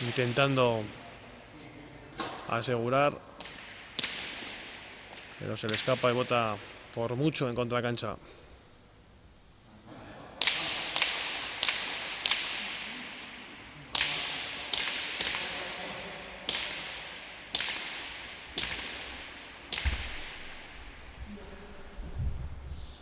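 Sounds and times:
ball cracking off walls and hands: 0:03.4 - 0:06.3, 0:10.4 - 0:12.9, 0:13.9 - 0:20.8.

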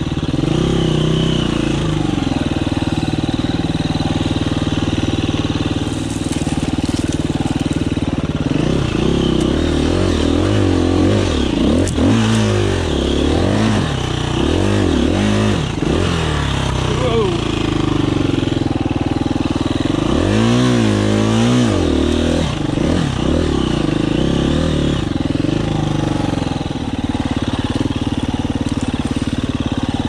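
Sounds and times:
dirt bike engine revving: 0:00.0 - 0:30.0.

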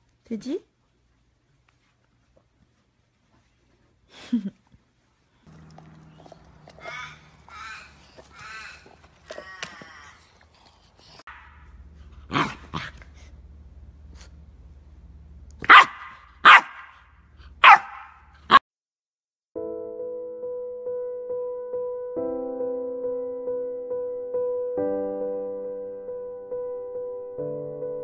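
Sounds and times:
puppy barking: 0:11.3 - 0:11.7, 0:12.3 - 0:13.0, 0:15.6 - 0:18.6
soft piano music: 0:19.6 - 0:28.0.

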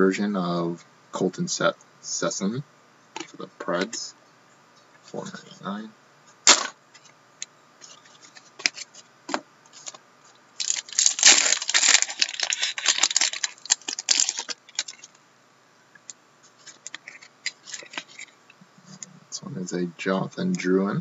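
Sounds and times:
wrapper tearing and crinkling: 0:10.6 - 0:15.2, 0:16.6 - 0:18.4.

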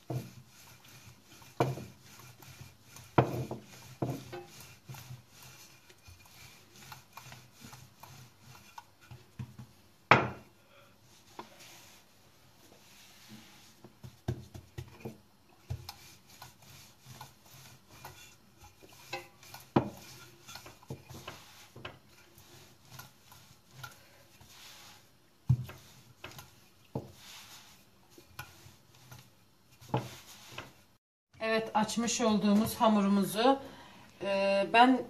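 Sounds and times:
rolling pin rubbing dough: 0:00.0 - 0:31.0
knocks on stone countertop: 0:10.1 - 0:10.4.

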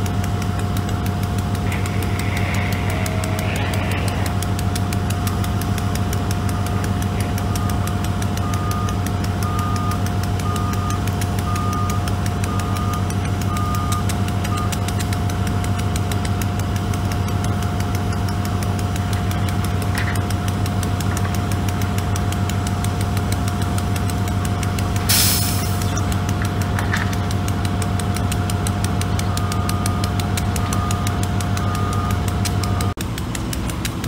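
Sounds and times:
diesel engines idling: 0:00.0 - 0:34.0
reverse alarm beeping: 0:07.4 - 0:14.8, 0:29.3 - 0:33.0.

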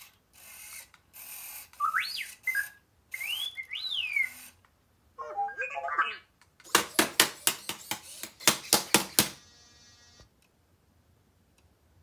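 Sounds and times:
faint steady buzz: 0:09.2 - 0:12.0.

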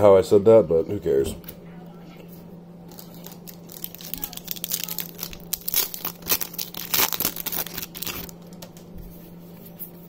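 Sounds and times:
foil wrapper tearing and crinkling: 0:02.9 - 0:08.4.

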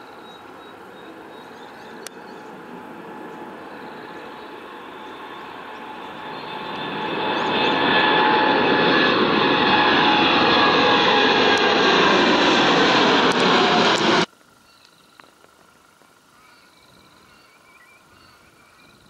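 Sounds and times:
jet engines at takeoff: 0:00.0 - 0:14.3.

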